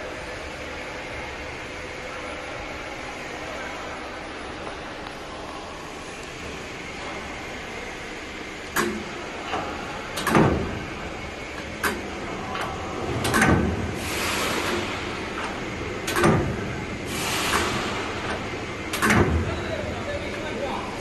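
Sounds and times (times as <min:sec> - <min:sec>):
steady machine hum: 0:00.0 - 0:21.0.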